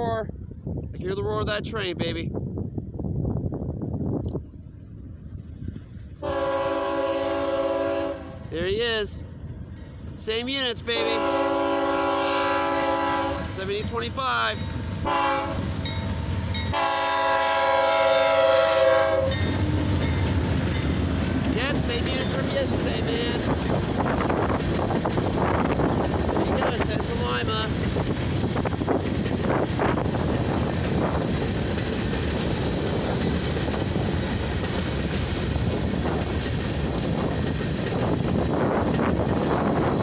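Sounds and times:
train rumbling past: 0.0 - 40.0
locomotive air horn blast: 6.2 - 8.5, 11.0 - 13.5, 15.0 - 15.7, 16.7 - 19.5.

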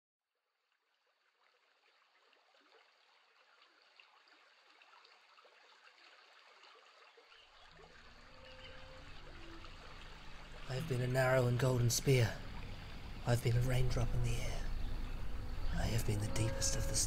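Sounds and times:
stream water trickling: 0.4 - 17.0
low steady hum: 7.8 - 17.0.

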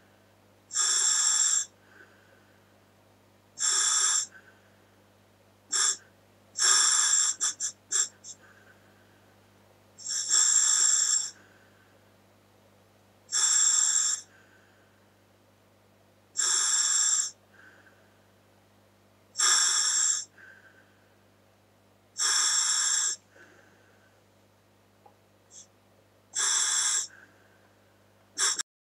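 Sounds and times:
scuba regulator hissing: 22.2 - 23.2, 26.4 - 27.1, 28.4 - 28.6.

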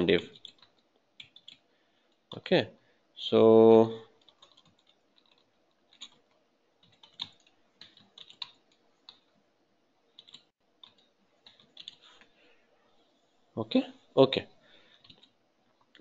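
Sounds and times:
computer keyboard keystrokes: 0.3 - 1.6, 4.2 - 9.3, 10.2 - 12.0, 15.0 - 16.0.

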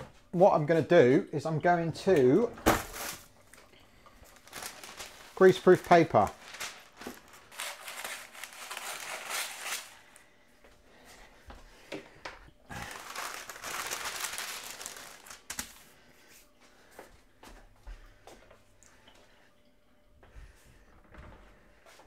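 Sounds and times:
paper rustling and crinkling: 2.7 - 10.2, 12.7 - 15.9.

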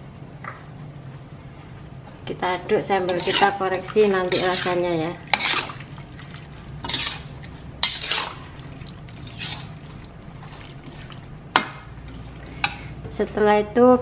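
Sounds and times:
wet swishing and sloshing: 3.1 - 12.9.

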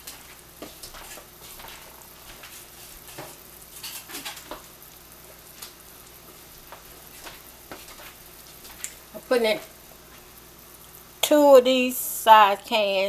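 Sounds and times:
water boiling hard in a pot: 0.0 - 13.0.

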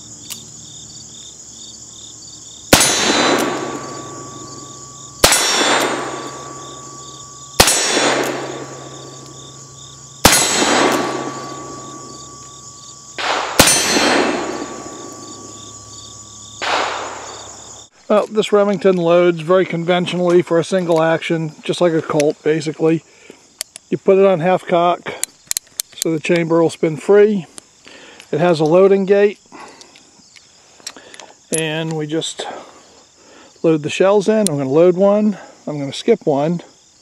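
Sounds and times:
revolver shots: 2.7 - 15.6, 16.6 - 17.6
steel target ringing: 2.7 - 17.8.

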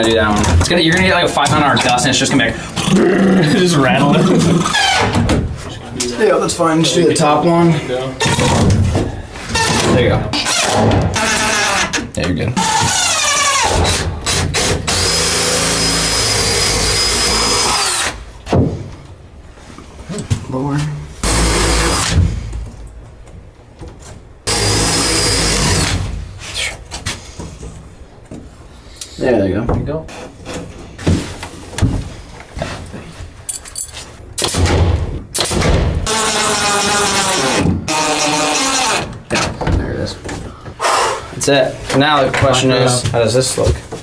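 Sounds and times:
cordless drill running: 12.7 - 18.2, 24.5 - 26.0.

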